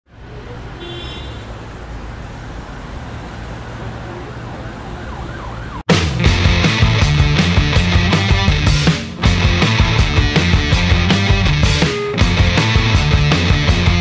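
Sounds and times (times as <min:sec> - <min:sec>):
street rumble: 0:00.1 - 0:14.0
faint siren wailing: 0:03.9 - 0:05.9
loud rock music: 0:05.9 - 0:14.0.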